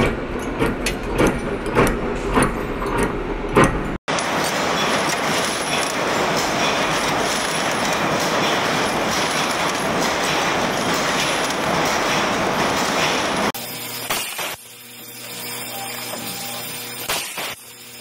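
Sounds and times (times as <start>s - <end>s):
screw machine metallic clatter: 0.0s - 18.0s
metal parts rattling down chute: 4.1s - 18.0s.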